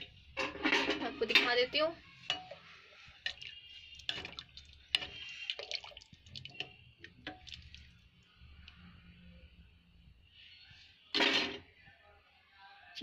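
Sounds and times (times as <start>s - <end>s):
liquid sloshing: 3.0s - 8.1s.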